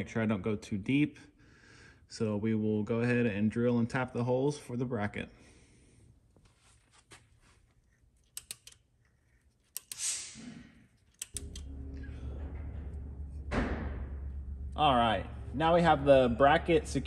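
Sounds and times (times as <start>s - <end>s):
hand tools clicking on metal: 8.3s - 8.8s, 11.0s - 11.7s
steady low hum: 10.5s - 17.0s
loud thump: 12.4s - 16.0s.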